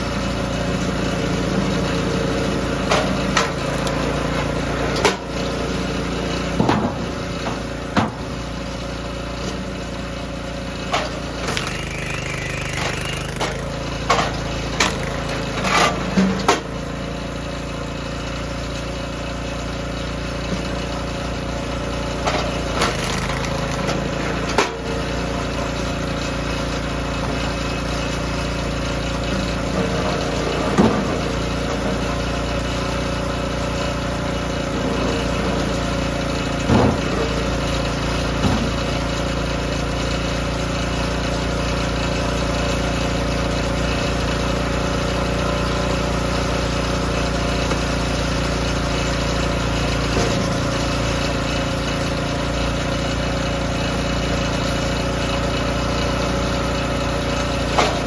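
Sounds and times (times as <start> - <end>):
small gas engine running: 0.0 - 58.0
wood cracking and knocking: 22.8 - 23.9.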